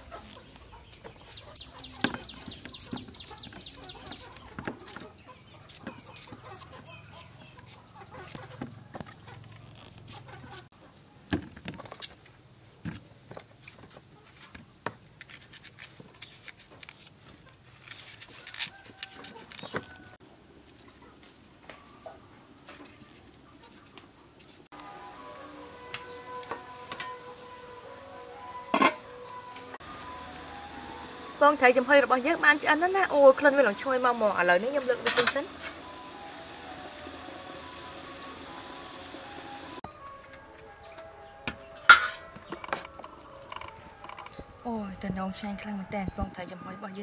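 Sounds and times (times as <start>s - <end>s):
chickens clucking: 0.0s - 11.1s.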